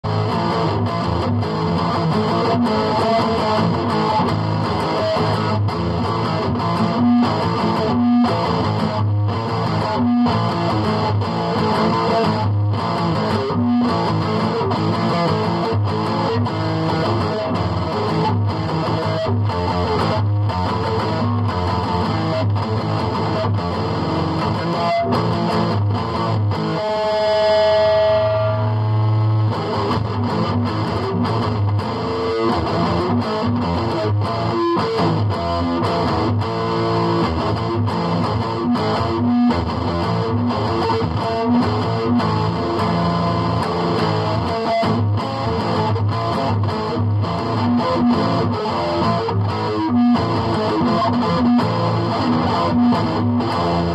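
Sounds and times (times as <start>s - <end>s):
distorted electric guitar riff: 0.0s - 53.9s.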